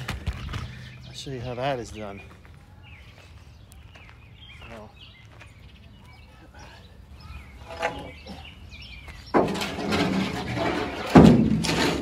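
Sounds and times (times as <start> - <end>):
faint bird chirps: 0.6 - 9.4
wooden board scraping on truck bed: 9.3 - 12.0.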